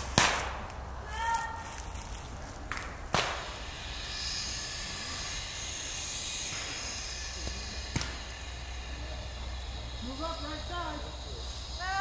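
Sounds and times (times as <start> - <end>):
paintball marker shot: 0.0 - 0.8, 2.7 - 3.6, 7.4 - 8.4
steady high hiss: 0.0 - 12.0
low rumble: 1.8 - 12.0.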